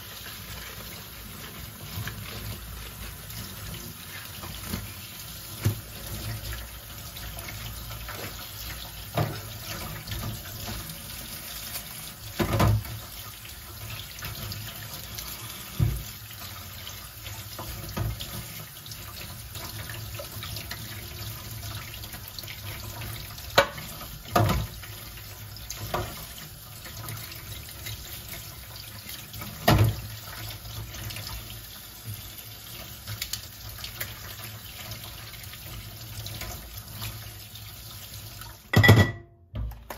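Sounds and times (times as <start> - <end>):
knocks against the sink: 12.4 - 12.9, 38.7 - 39.9
tap running into a steel sink: 23.5 - 24.7.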